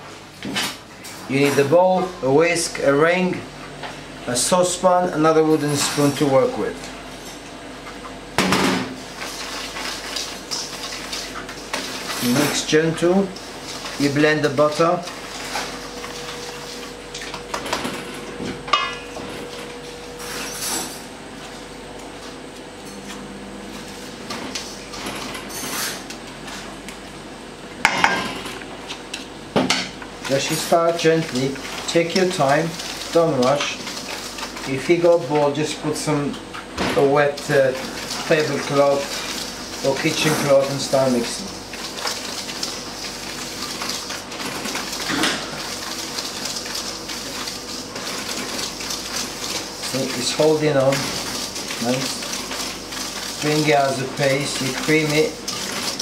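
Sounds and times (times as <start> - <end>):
whisk scraping metal bowl: 9.1 - 17.4, 30.3 - 36.1, 37.0 - 56.0.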